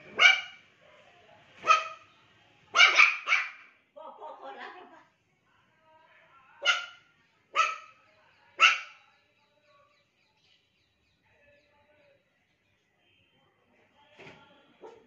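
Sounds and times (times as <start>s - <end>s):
puppy barking: 0.1s - 0.6s, 1.6s - 2.0s, 2.7s - 3.7s, 6.6s - 8.0s, 8.6s - 9.0s, 14.8s - 15.0s.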